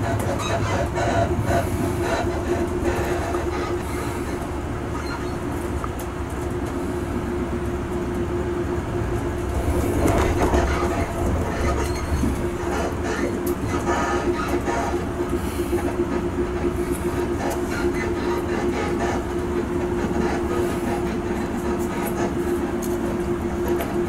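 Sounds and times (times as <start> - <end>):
train rumbling on rails: 0.0 - 24.0
wheels clattering over track: 9.2 - 24.0.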